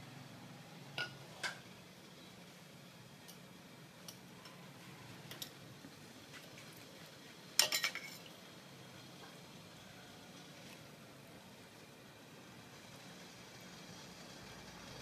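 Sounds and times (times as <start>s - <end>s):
ladle clinking on metal bowl: 7.6s - 8.3s.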